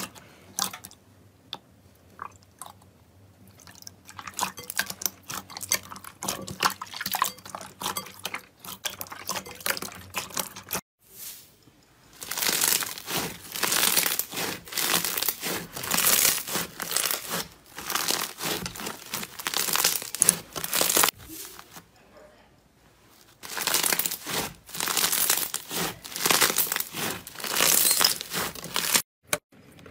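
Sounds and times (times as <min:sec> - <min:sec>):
crunching bead slime: 0:12.0 - 0:21.8, 0:23.2 - 0:29.0
hands squishing slime: 0:12.2 - 0:21.8, 0:23.4 - 0:29.0.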